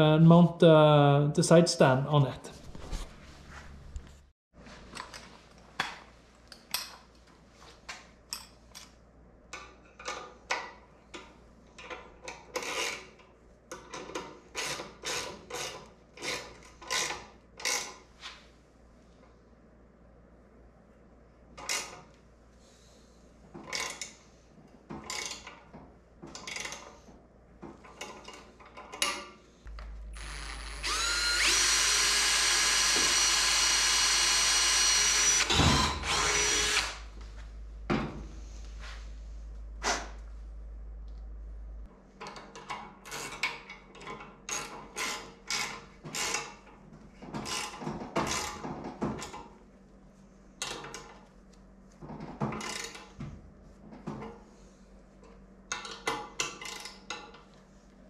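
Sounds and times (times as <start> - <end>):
electric drill whining: 29.7 - 37.1
tools clicking and knocking: 55.7 - 57.5.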